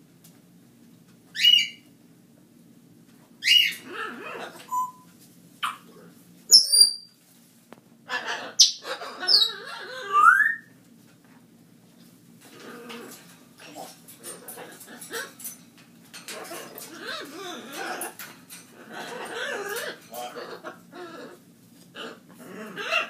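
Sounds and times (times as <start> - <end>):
parrot whistling and squawking: 1.4 - 1.8, 3.4 - 5.9, 6.5 - 7.1, 8.1 - 10.7.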